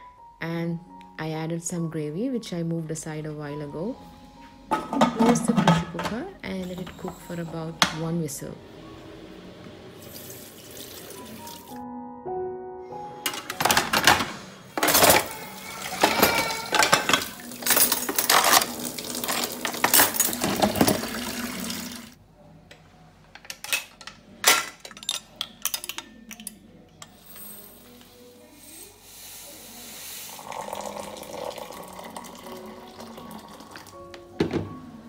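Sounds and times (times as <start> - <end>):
dishes clattering into dish rack: 4.7 - 8.0, 13.3 - 21.4, 23.4 - 26.5
utensils clinking on metal hooks: 14.8 - 21.2, 23.3 - 27.7.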